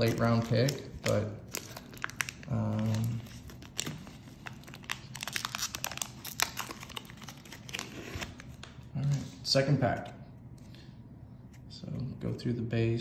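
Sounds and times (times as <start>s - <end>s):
card pack tearing and crinkling: 0.0s - 8.7s.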